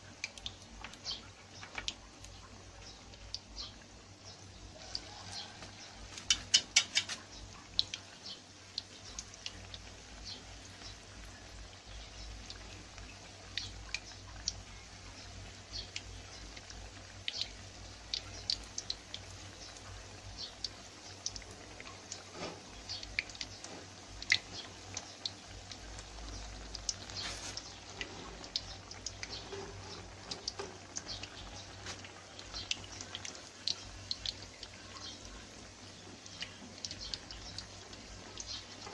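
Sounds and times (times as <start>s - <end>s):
food deep-frying in oil: 0.0s - 38.9s
oil popping and crackling: 0.0s - 38.9s.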